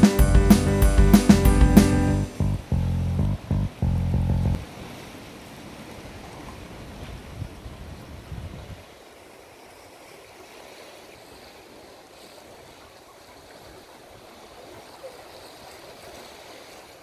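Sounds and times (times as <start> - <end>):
wind rumble on microphone: 6.9 - 8.8.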